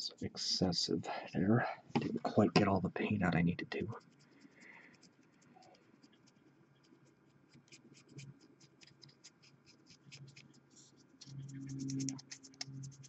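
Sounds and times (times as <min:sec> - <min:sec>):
paintbrush bristles scratching: 0:03.9 - 0:13.0.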